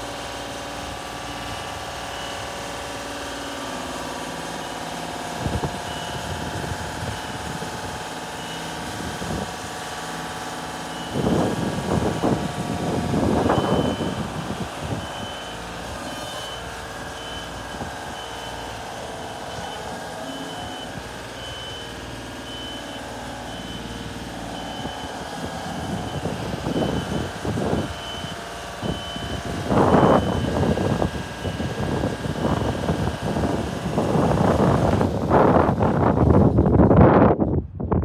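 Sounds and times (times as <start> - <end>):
diesel engine running: 0.0 - 37.9
motion alarm beeping: 13.4 - 14.3, 14.9 - 30.8.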